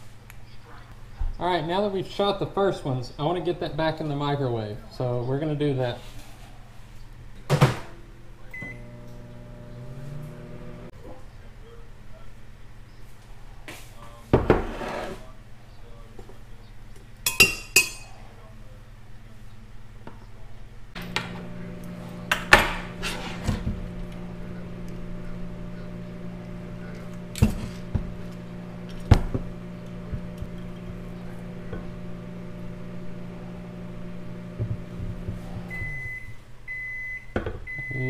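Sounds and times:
microwave beeps: 8.5 - 10.9, 35.7 - 38.0
microwave oven humming: 8.5 - 10.9, 21.0 - 38.0.

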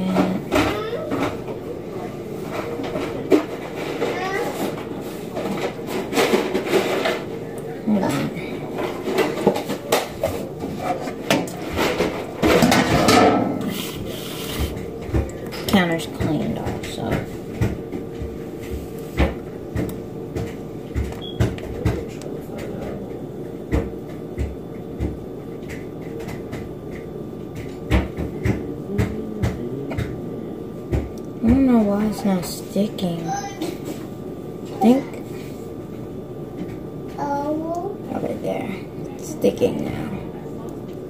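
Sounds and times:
low household hum: 0.0 - 41.0.

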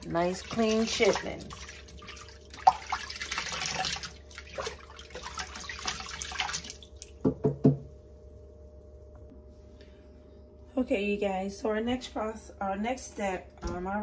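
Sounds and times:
hands sloshing in sink water: 0.0 - 7.2
water splashing and dripping: 0.1 - 7.2.

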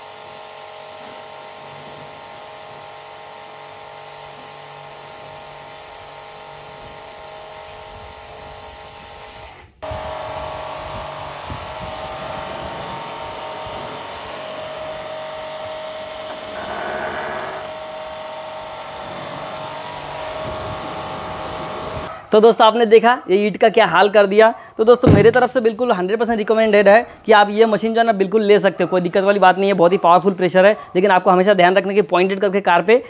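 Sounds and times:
pressure washer whining: 0.0 - 22.1
water jet hissing on car: 0.0 - 22.1.

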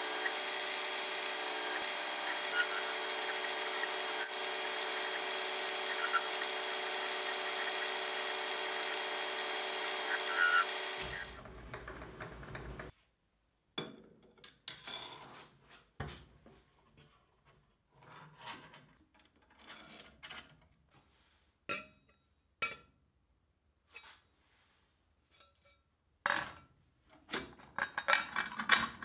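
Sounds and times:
metal lathe running: 0.0 - 12.9.

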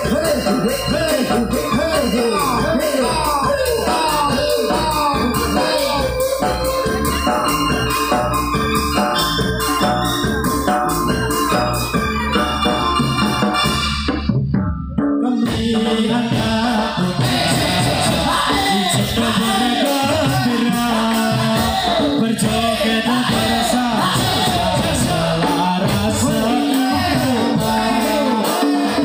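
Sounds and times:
person singing: 0.0 - 8.2, 15.2 - 29.0
keyboard: 0.0 - 29.0
percussion: 0.0 - 29.0.

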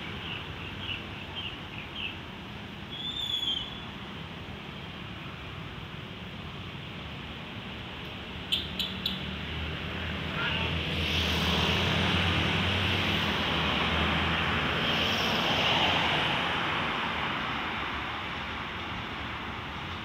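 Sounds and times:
engine drone: 9.2 - 17.2
rushing noise: 9.4 - 19.9.

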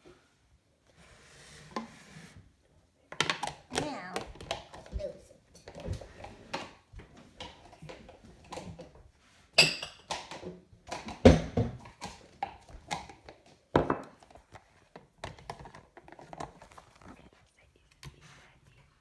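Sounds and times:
objects knocked and set down: 9.6 - 14.3.

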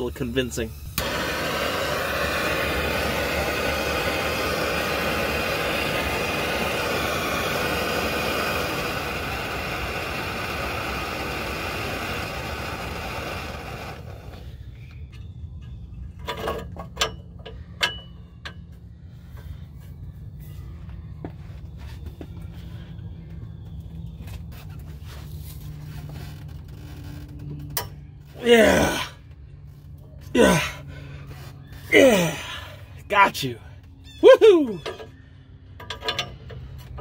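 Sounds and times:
torch flame hissing: 0.8 - 14.6.

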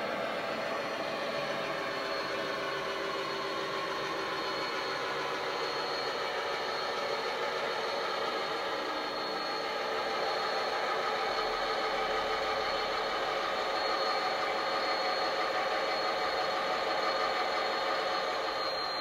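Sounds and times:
thin high whine: 0.0 - 19.0.

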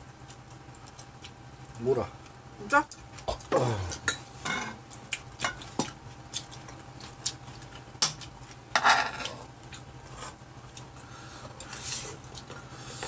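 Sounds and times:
utensils clinking on pan and bowls: 4.1 - 4.8, 8.8 - 9.3.

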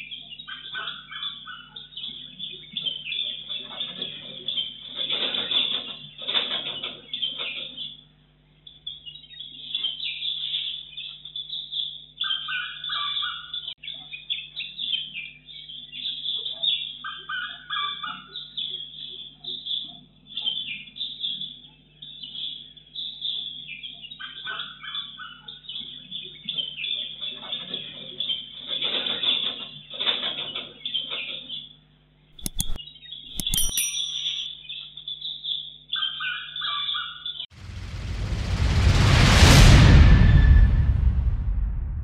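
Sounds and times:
birds chirping and calling: 8.8 - 27.2, 32.7 - 37.4.

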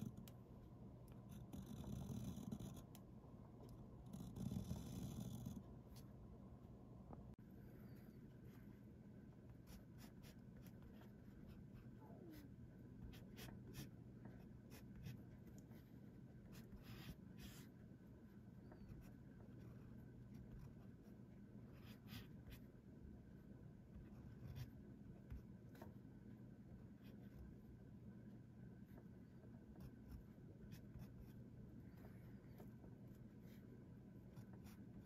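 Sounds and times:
pen nib scratching on paper: 1.1 - 6.1, 13.0 - 17.8, 18.5 - 22.7.

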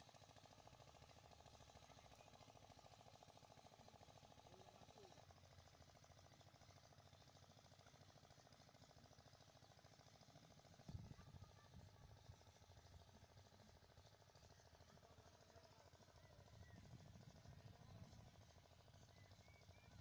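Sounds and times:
distant engine pulsing: 9.1 - 20.0.

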